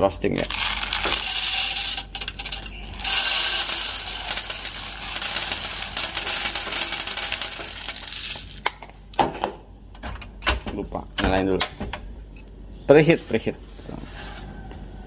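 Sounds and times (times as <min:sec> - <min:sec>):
coffee beans pouring into wire basket: 0:00.3 - 0:08.6.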